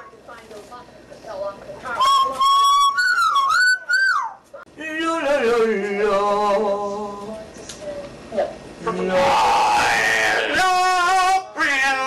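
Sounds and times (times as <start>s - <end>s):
parrot singing wavering note: 2.0s - 4.4s
parrot whistling: 2.0s - 4.4s.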